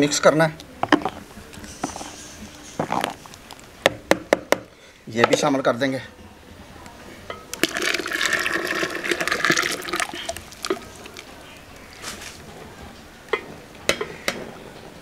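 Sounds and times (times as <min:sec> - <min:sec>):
paste pouring into liquid: 0:07.6 - 0:11.3.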